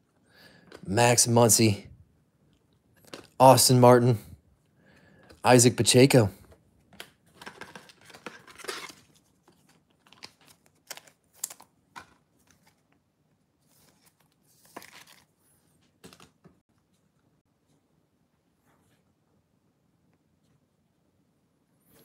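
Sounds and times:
trading cards rustling: 7.0 - 12.9, 13.6 - 16.5.

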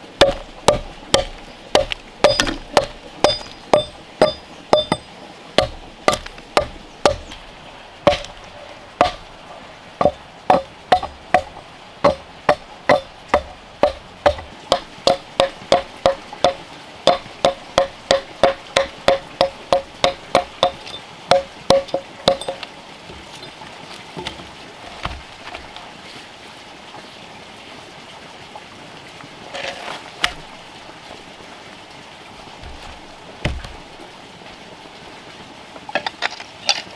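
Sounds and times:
axe chopping wooden log: 0.2 - 5.0, 5.6 - 7.4, 8.1 - 8.4, 9.0 - 9.3, 10.0 - 22.6, 24.2 - 25.6, 32.6 - 33.8.

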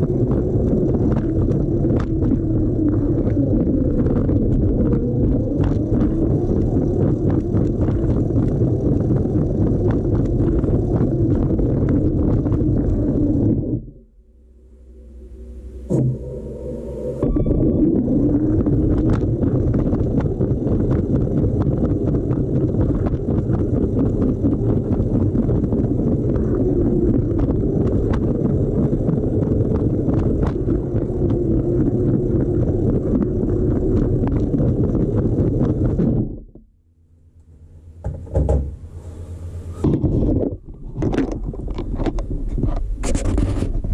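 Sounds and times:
toy train motor and wheels rumbling: 0.0 - 13.5, 18.6 - 36.0
knocks: 38.0 - 38.8.

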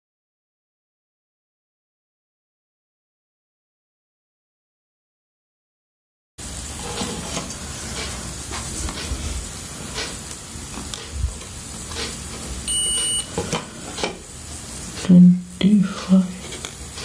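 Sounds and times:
steady hiss: 6.4 - 17.0
multimeter beep: 12.7 - 13.3.

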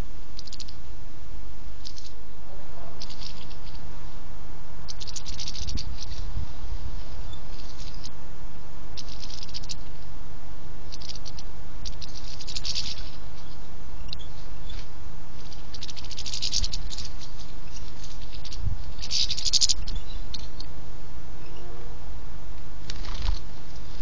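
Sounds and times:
low steady rumble: 0.0 - 24.0.

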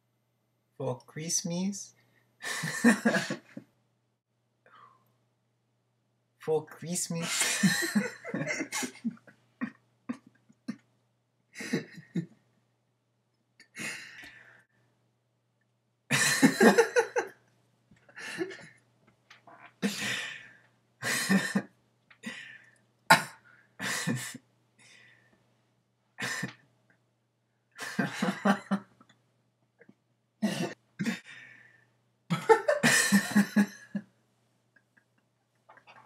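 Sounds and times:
person coughing: 2.9 - 3.5, 7.2 - 9.2, 23.1 - 24.4, 30.4 - 31.2.

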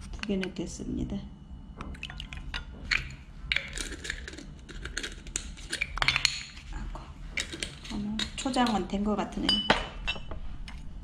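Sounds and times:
spoon clinking against glass bowl: 7.4 - 10.3.

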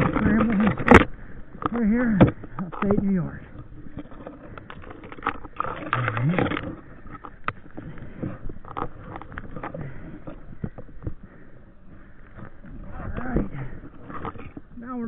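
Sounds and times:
branches and snow scraping gear: 0.0 - 15.0
grunt of effort: 5.9 - 6.6.

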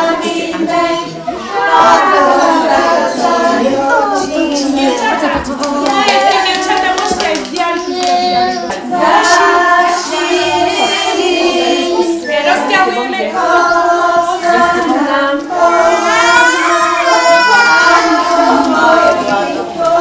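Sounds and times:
group singing a children's song: 0.0 - 20.0
hand clapping: 5.6 - 8.4.

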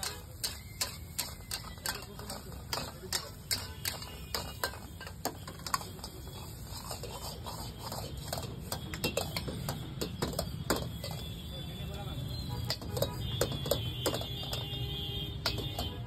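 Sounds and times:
ladles clanking on a wok: 0.0 - 11.5, 12.1 - 16.0
gas burner flame rumbling: 0.0 - 16.0.

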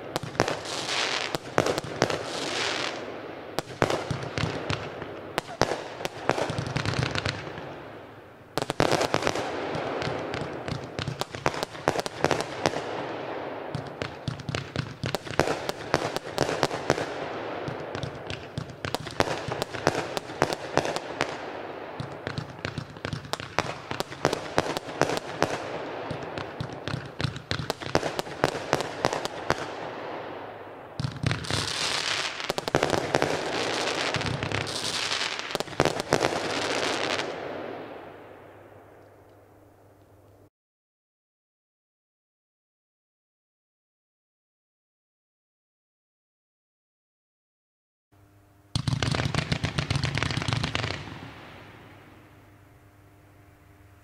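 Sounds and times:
fireworks popping and banging: 3.6 - 7.6, 13.7 - 21.4, 22.0 - 29.7, 48.8 - 51.3.

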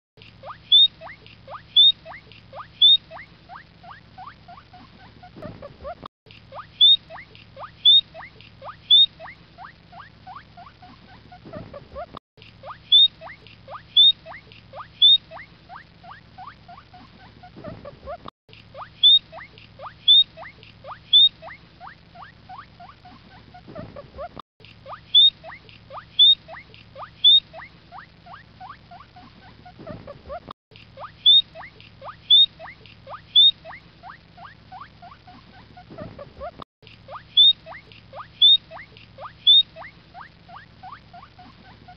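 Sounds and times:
guinea pig squeaking: 0.2 - 41.9.

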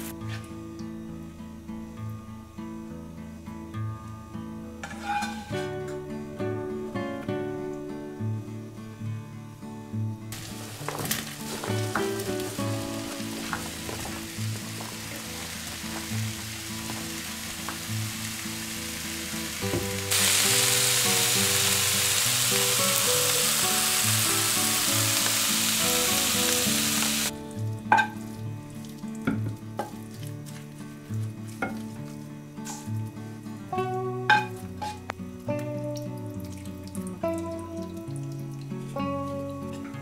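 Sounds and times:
soft background music: 0.0 - 40.0
vegetables sizzling in frying pan: 4.8 - 5.7, 10.3 - 28.2.

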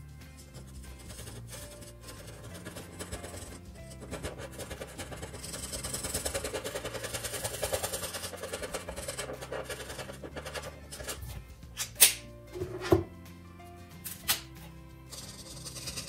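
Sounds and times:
pen scribbling on paper: 0.4 - 11.3, 15.1 - 16.0.

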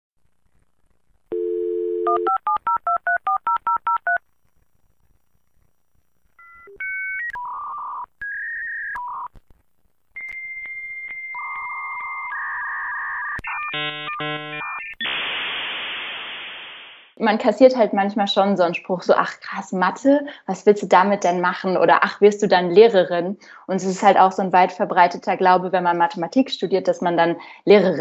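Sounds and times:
dial tone: 1.3 - 4.2, 10.2 - 15.0
modem beeps and high tone: 10.2 - 16.4.

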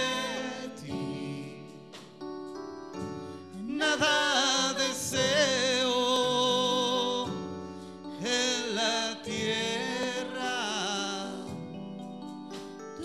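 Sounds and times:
man and woman singing: 0.0 - 1.9, 3.6 - 7.4, 8.2 - 11.7
sustained keyboard chords: 0.0 - 13.0.

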